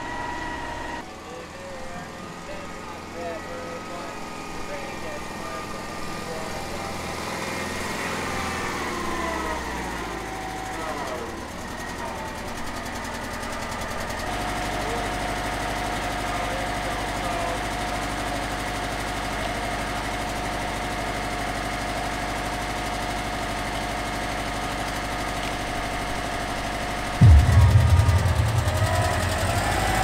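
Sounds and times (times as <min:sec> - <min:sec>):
ice resurfacer mechanical hum: 0:00.0 - 0:17.7
loud low rumble: 0:27.2 - 0:30.0.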